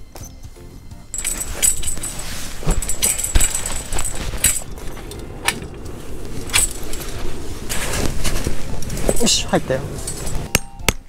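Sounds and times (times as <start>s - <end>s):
metal pole knocking and clinking: 1.1s - 7.3s, 8.8s - 11.0s
canvas rustling: 1.1s - 10.5s.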